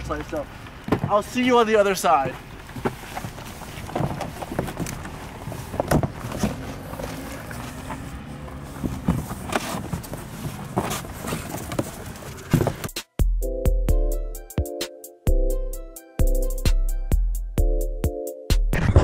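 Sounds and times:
cardboard scraping: 2.4 - 13.0
cardboard box knocks and thumps: 8.8 - 13.0.

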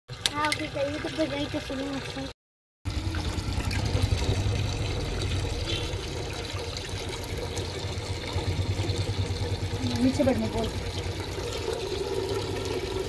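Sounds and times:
low rumble: 2.9 - 11.4
water sloshing in steel bowl: 2.9 - 13.0.

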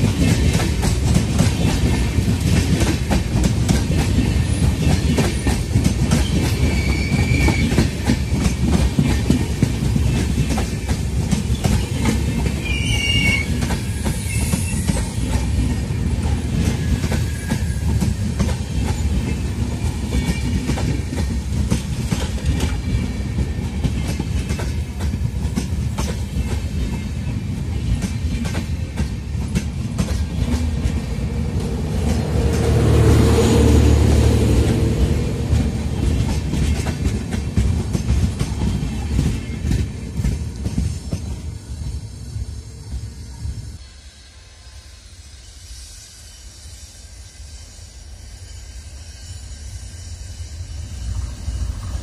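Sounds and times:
train wheels clattering over rail joints: 0.0 - 12.6.

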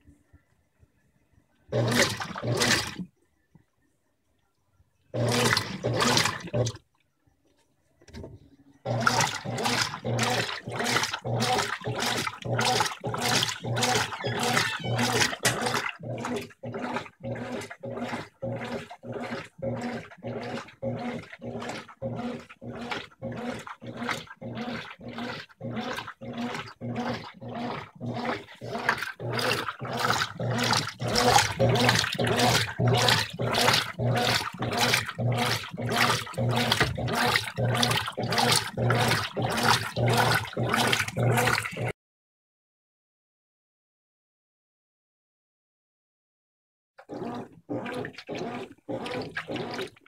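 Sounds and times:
washing machine motor hum: 1.6 - 3.1, 5.0 - 6.9, 8.0 - 41.9, 47.0 - 50.0
washing machine water sloshing: 1.6 - 3.2, 5.1 - 7.0, 8.1 - 42.0, 47.0 - 50.0.

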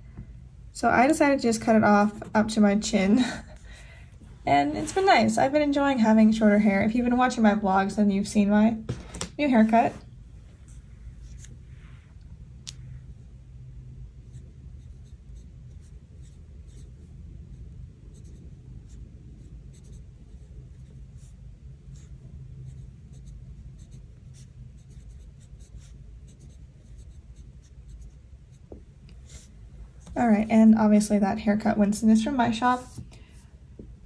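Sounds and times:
faint low hum: 0.0 - 34.0
pen scratching on paper: 14.2 - 29.5.

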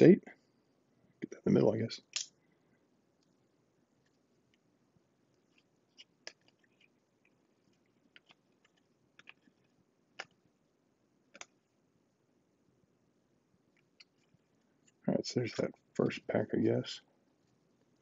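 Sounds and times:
cardboard cards clicking and snapping: 8.1 - 9.6.

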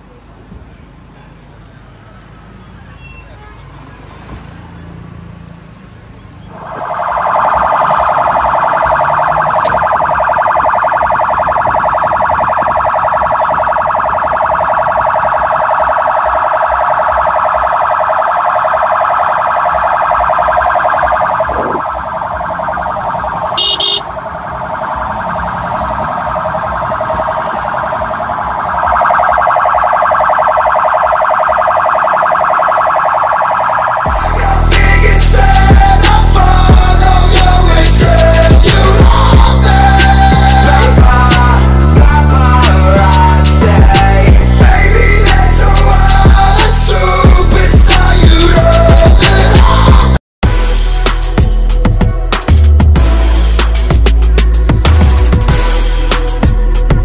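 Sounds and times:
electronic siren warbling: 6.5 - 36.4.

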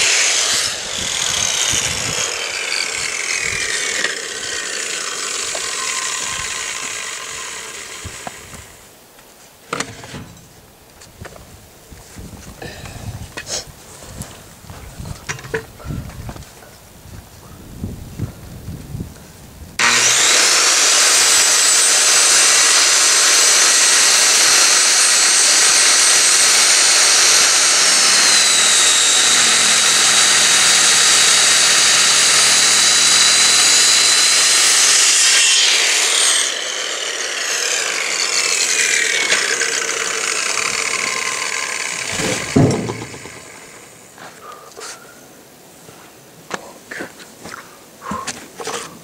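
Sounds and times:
circular saw cutting wood: 0.0 - 8.9, 19.8 - 44.1
thump: 9.7 - 10.4, 42.1 - 43.4.

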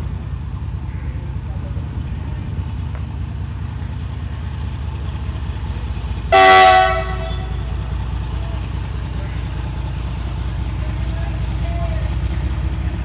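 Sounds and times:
vehicle horn: 6.3 - 7.8.

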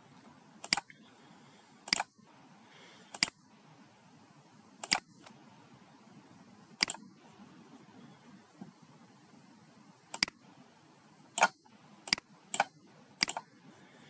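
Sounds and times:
faint room noise: 0.0 - 14.0
computer mouse clicks: 0.6 - 1.0, 1.9 - 2.1, 3.1 - 3.4, 4.8 - 5.4, 6.8 - 7.1, 10.1 - 10.4, 11.3 - 13.5.

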